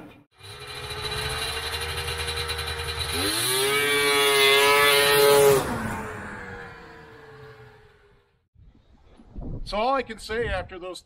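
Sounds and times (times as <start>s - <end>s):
snowmobile engine revving: 0.4s - 8.4s.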